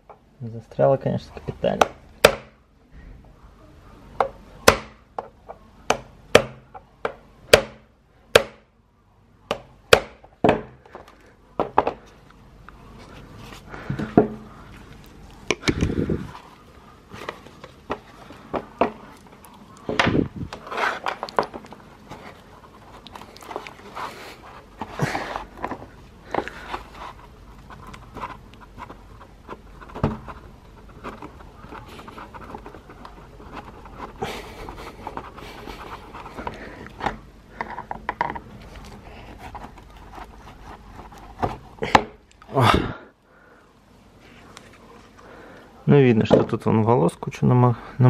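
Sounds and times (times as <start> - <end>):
wheel parts handled on cardboard: 10.4 - 42.4.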